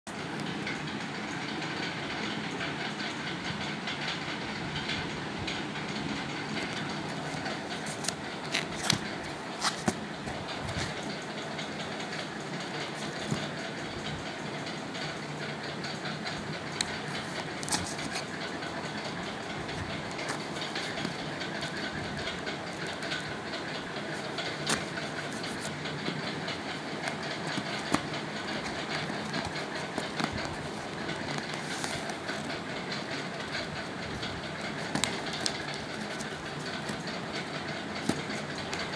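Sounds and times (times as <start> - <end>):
steady background noise: 0.1 - 38.9
cardboard box being handled: 26.9 - 33.1, 34.7 - 38.9.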